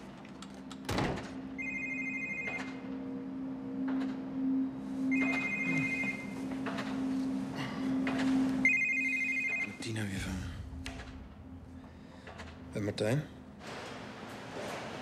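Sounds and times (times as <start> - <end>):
steady low hum: 0.0 - 15.0
mobile phone ringing: 1.6 - 2.8, 5.1 - 6.4, 8.6 - 9.8.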